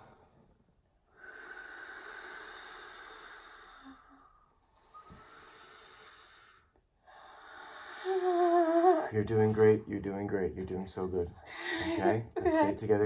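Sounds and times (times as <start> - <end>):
people breathing slowly and deeply: 0.0 - 9.8.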